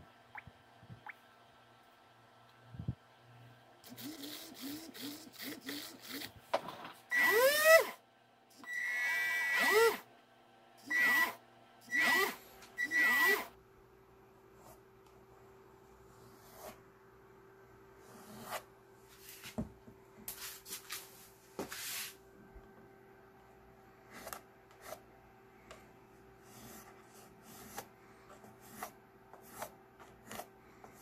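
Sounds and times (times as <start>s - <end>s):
small electric motor whining: 3.8s - 6.4s, 7.1s - 8.0s, 8.6s - 10.1s, 10.8s - 13.6s.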